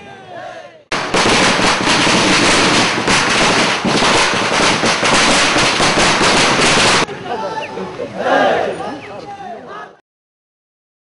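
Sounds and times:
firecrackers crackling: 0:00.9 - 0:07.1.

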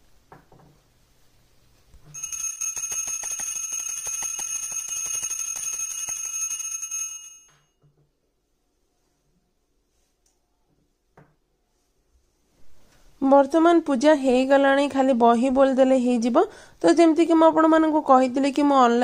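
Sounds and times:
hand bell ringing rapidly: 0:02.2 - 0:07.4.

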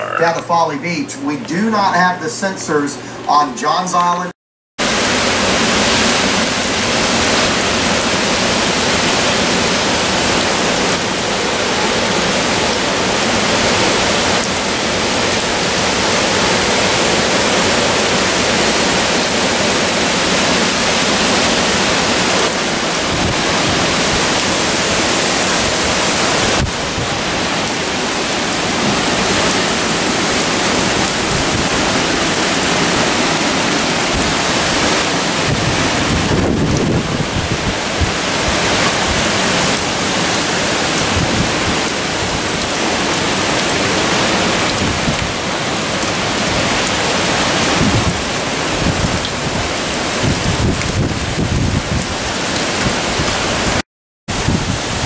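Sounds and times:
wind and rain rushing: 0:04.8 - 0:55.0.

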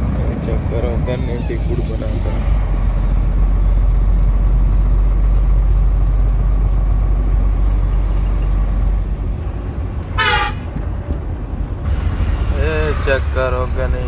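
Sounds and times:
truck engine rumbling: 0:00.0 - 0:14.0
short horn blast: 0:10.2 - 0:10.7.

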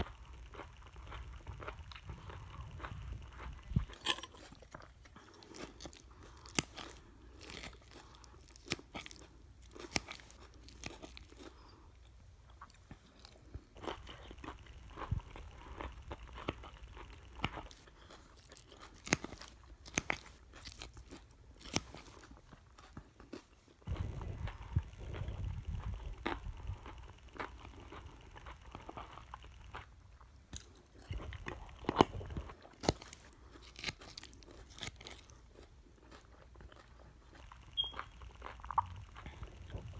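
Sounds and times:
muffled low noise: 0:00.0 - 0:04.2, 0:23.9 - 0:30.2, 0:38.6 - 0:39.9
chewing crunchy salad: 0:00.0 - 0:39.9.

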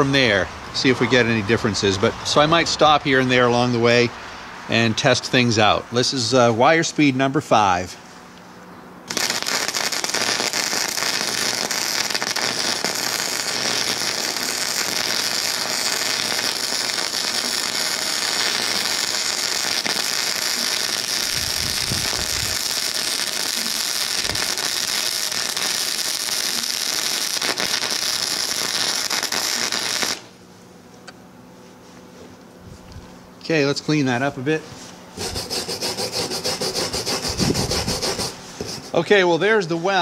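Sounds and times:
welding arc crackling: 0:09.1 - 0:30.4, 0:35.2 - 0:38.4.

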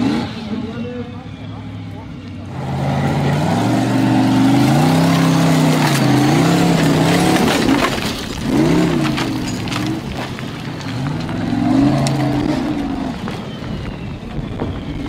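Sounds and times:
buggy engine at high revs: 0:00.0 - 0:15.0
stones and gravel clicking: 0:05.0 - 0:15.0.

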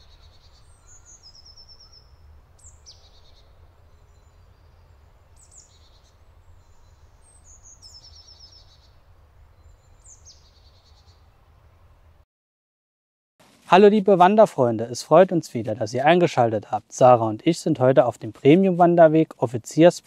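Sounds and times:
songbird singing trills: 0:00.0 - 0:11.4
faint low rumble: 0:00.0 - 0:12.2.

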